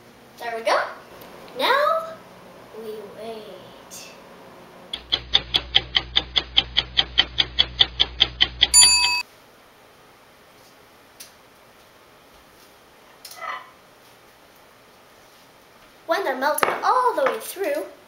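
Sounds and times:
bell ding: 8.7s - 9.2s.

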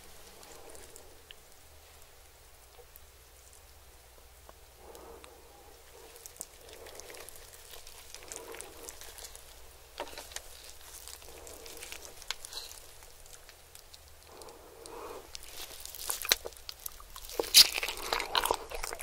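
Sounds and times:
food dragged through cheese sauce: 4.8s - 13.5s, 14.2s - 19.0s
roast chicken skin crackling: 4.9s - 19.0s.

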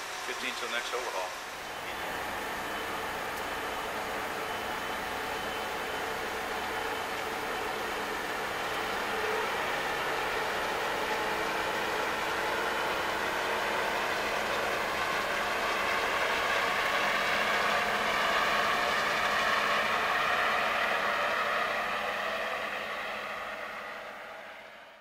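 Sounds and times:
churning water wake: 0.0s - 24.3s
boat engine humming: 0.0s - 24.8s.

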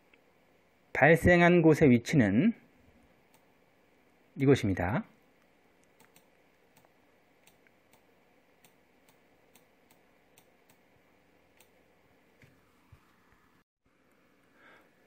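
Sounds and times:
computer mouse clicks: 5.8s - 10.8s, 11.6s - 11.8s.

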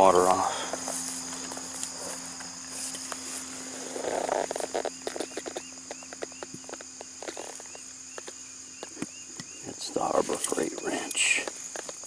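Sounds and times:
insects chorus: 0.0s - 12.0s
small repeated chirps: 4.3s - 9.7s.

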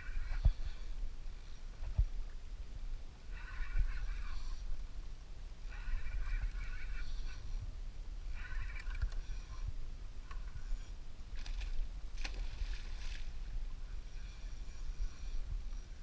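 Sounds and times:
wind and water rumble: 0.0s - 16.0s
fish splashing and thrashing: 11.3s - 13.4s.

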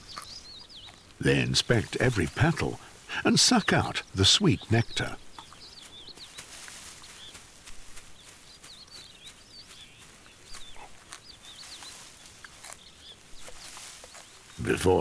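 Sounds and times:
small birds chirping: 0.0s - 15.0s
soft scattered ticks: 5.0s - 14.6s.

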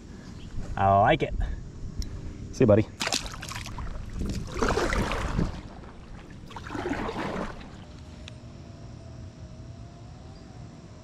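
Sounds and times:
paddle swishing through water: 3.0s - 8.2s.

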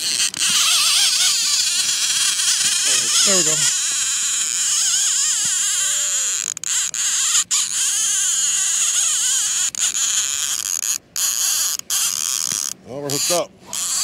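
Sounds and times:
fishing reel drag screaming: 0.0s - 14.0s.

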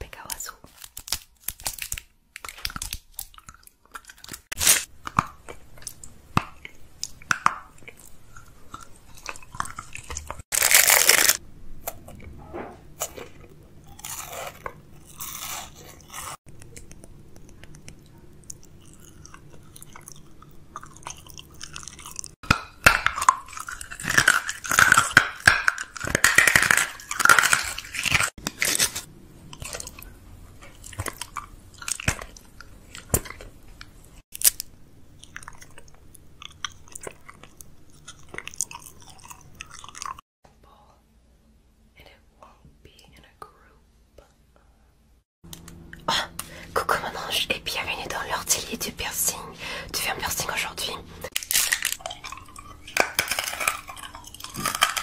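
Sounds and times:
chewing and biting: 0.9s - 12.3s, 13.0s - 40.2s, 51.3s - 55.0s.

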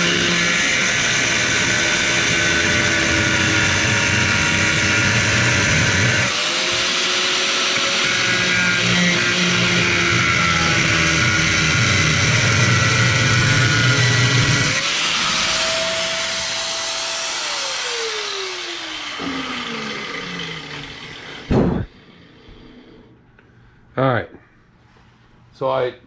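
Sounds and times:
angle grinder cutting metal: 0.0s - 22.4s
loud thump: 21.5s - 21.9s.

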